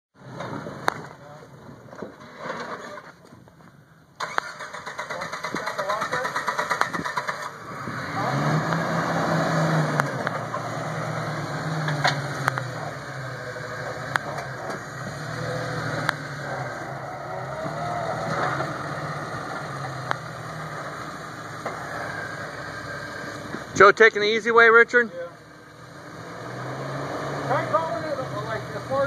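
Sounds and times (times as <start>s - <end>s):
car engine running at low revs: 5.6s - 24.2s.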